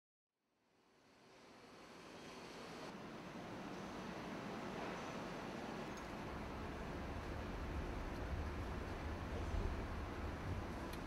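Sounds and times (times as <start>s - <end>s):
low factory rumble: 2.9s - 11.0s.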